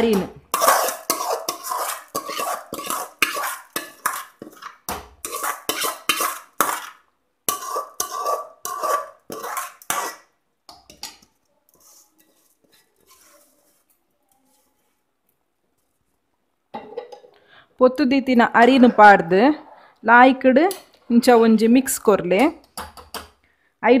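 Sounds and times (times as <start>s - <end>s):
metal spoon scraping metal bowl: 0.0s - 15.0s.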